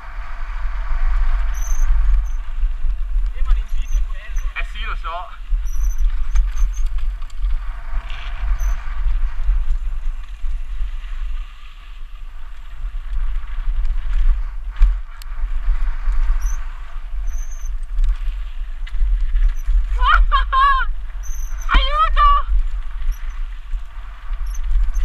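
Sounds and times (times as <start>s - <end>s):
bike rattling: 0.0s - 25.0s
wind rumble on camera: 0.0s - 25.0s.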